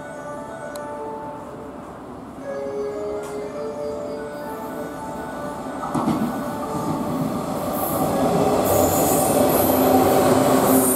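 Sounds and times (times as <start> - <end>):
train wheels rumbling on rails: 5.8 - 10.9.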